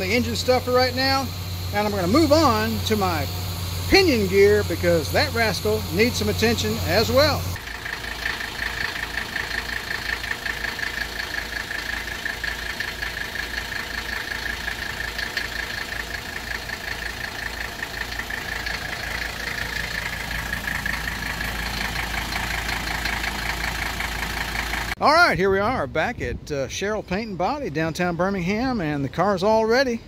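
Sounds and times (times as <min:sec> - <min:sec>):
diesel engine idling: 0:00.0 - 0:25.3.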